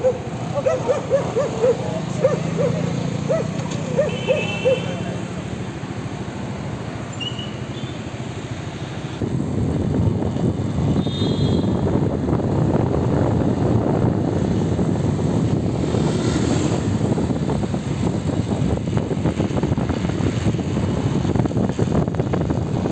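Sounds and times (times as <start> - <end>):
vehicle rumbling: 0.0 - 22.9
wind buffeting microphone: 9.1 - 22.9.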